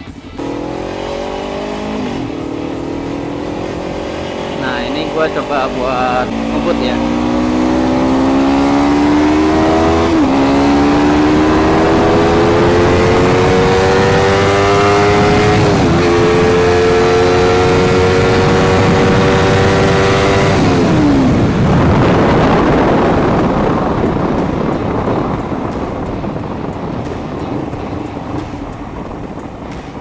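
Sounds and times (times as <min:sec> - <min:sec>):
motorcycle engine accelerating: 0:00.0 - 0:30.0
rushing wind: 0:00.0 - 0:30.0.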